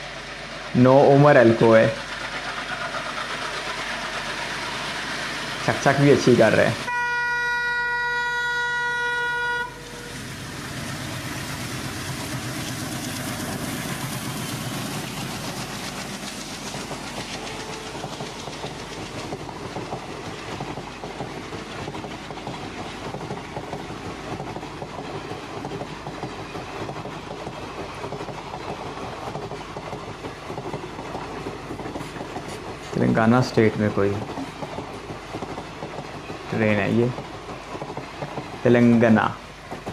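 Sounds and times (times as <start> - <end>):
train passing with wheel clatter: 0.0 - 39.9
train horn blast: 6.9 - 10.2.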